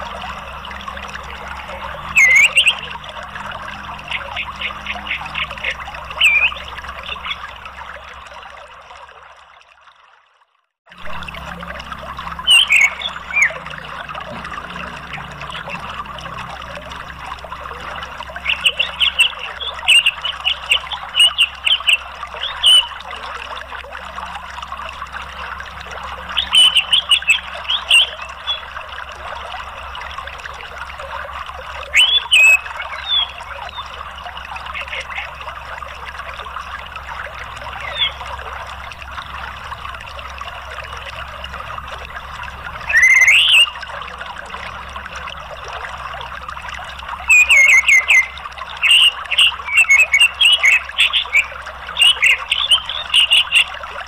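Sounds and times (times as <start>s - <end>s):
bird chirping calls: 0.0s - 7.6s, 12.3s - 16.1s, 17.7s - 23.1s, 26.2s - 28.8s, 31.9s - 33.9s, 34.6s - 35.4s, 37.6s - 38.3s, 42.8s - 43.8s, 47.2s - 53.8s
running water rushing: 0.0s - 54.0s.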